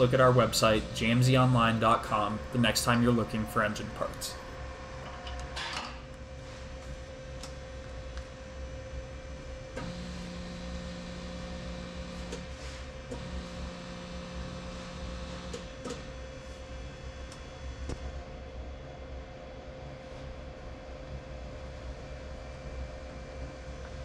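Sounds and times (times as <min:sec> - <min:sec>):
feed motor: 0:00.0 - 0:03.5, 0:09.8 - 0:16.1
boring machine humming: 0:00.0 - 0:24.0.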